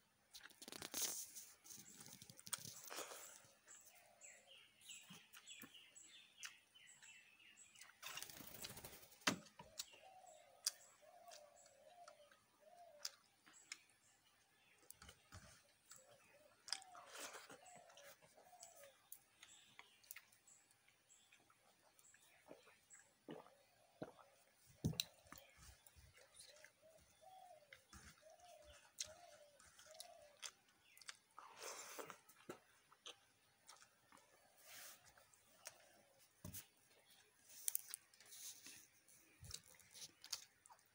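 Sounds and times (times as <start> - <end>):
bird chirping: 0.4 - 40.9
chewing and wet mouth clicks: 29.0 - 31.4.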